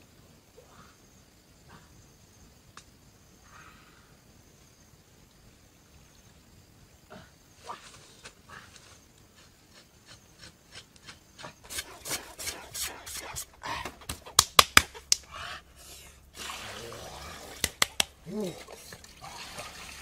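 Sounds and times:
rough rubbing on skin: 9.4 - 15.1
sharp loud clicks: 14.0 - 15.3.

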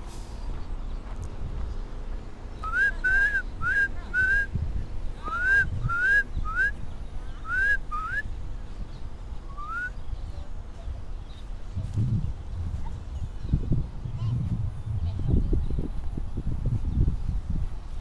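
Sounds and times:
rising whistled notes: 7.4 - 8.3, 9.5 - 10.0.

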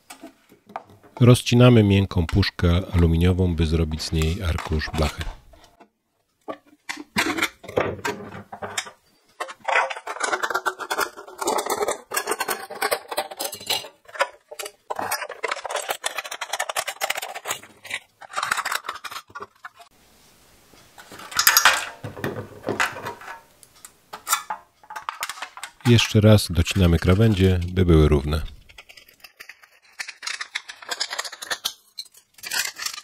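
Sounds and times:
thin metal can crinkling: 2.1 - 5.7, 8.8 - 19.9, 24.1 - 33.0.

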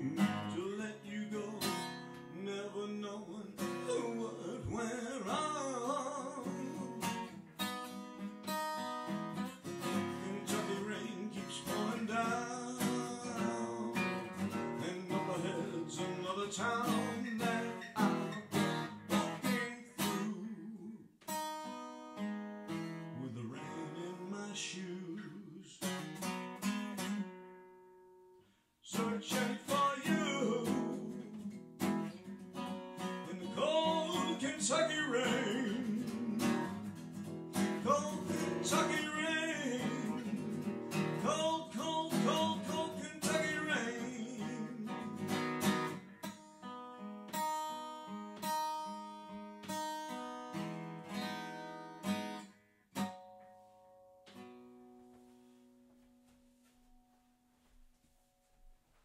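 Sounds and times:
man singing: 0.0 - 7.4, 9.7 - 21.1, 23.0 - 26.0, 28.8 - 31.6, 33.0 - 37.0, 37.6 - 46.0
strummed acoustic guitar: 0.0 - 57.2.

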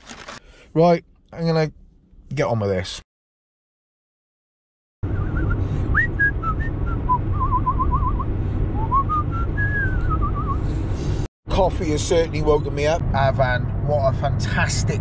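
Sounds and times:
person whistling a tune: 5.1 - 10.6.

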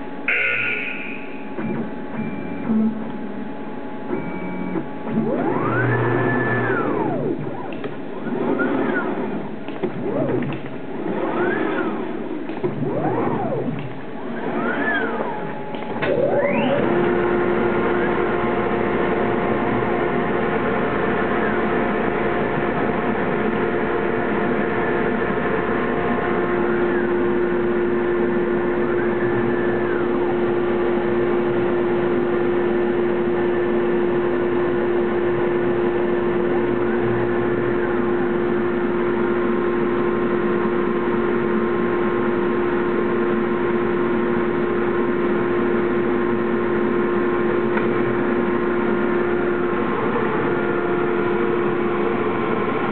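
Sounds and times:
machine humming: 0.0 - 52.9
machine whine rising and falling: 0.0 - 52.9.

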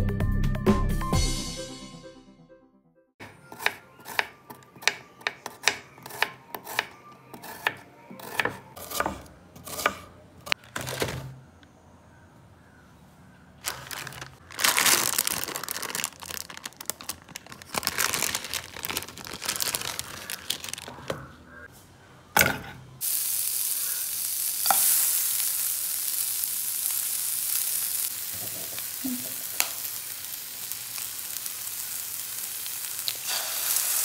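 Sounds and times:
knife slicing onion on wooden board: 3.4 - 10.2
plastic wrapper crinkling: 10.6 - 11.3, 13.6 - 21.1.

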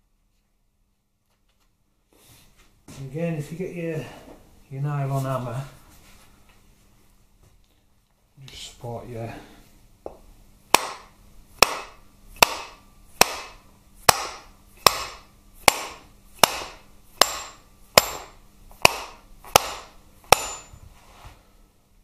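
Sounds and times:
nylon hammer striking metal shaft: 10.7 - 20.8.

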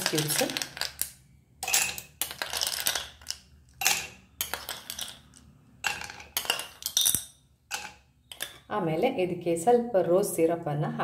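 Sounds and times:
ice cubes clinking in a glass: 0.0 - 8.7.

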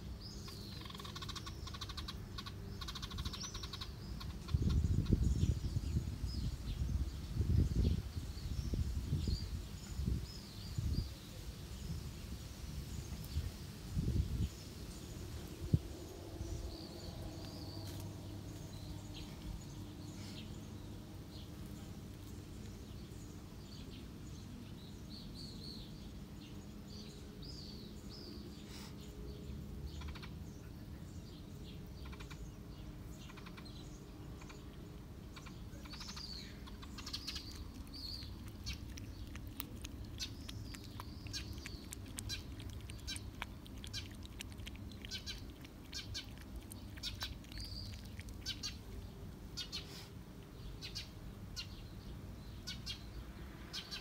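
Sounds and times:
small birds chirping: 0.0 - 54.0
low background hum: 14.8 - 53.7.

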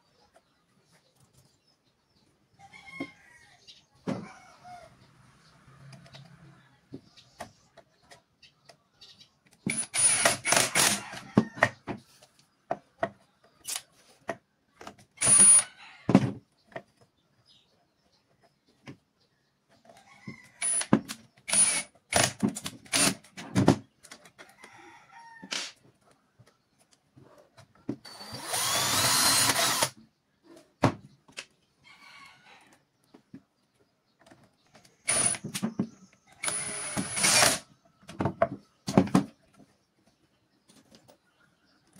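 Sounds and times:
impact driver whine and hammering: 9.7 - 11.3, 15.2 - 15.6, 20.6 - 23.3, 28.0 - 30.0, 35.1 - 35.6, 36.4 - 37.7.

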